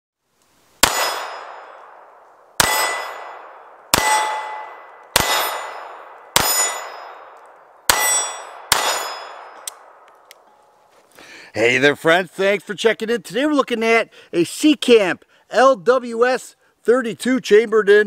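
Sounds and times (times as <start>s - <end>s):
bullet clanging steel plate: 0.8s - 2.0s, 2.6s - 10.8s
pistol shots: 0.8s - 10.1s.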